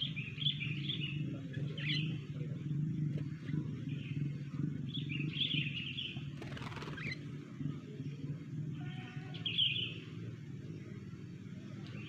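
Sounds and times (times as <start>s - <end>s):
bird calling: 0.0s - 2.3s, 8.7s - 10.3s
low steady hum: 0.0s - 12.0s.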